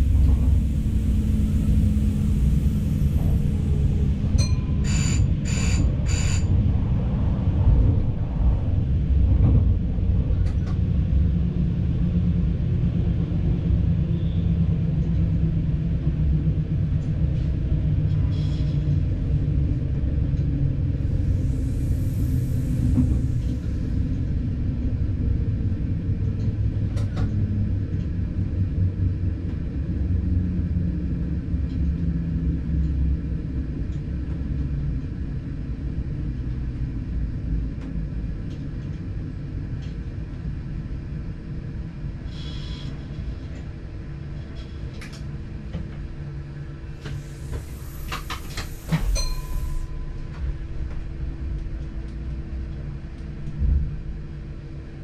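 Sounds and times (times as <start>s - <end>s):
train engine rumble: 0.0s - 55.0s
burst of hiss: 47.1s - 49.7s
short high tone: 49.2s - 50.2s.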